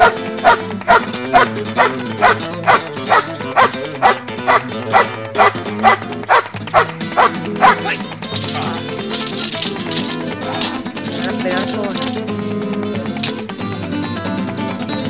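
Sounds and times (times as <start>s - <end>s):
large dog barking: 0.0s - 8.0s
background music: 0.0s - 15.0s.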